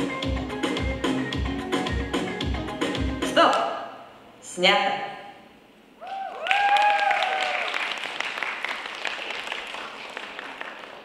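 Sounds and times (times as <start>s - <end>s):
shouts and whoops: 6.0s - 7.9s
audience applauding: 6.0s - 11.0s.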